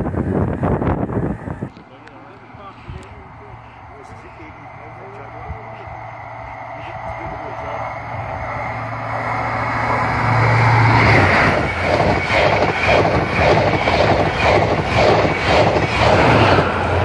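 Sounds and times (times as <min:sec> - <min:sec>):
passenger train passing: 0:00.0 - 0:17.0
train wheels clattering: 0:09.9 - 0:17.0.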